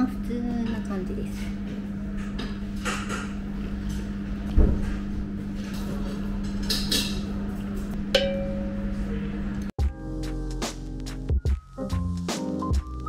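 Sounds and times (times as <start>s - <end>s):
room hum: 0.0s - 9.8s.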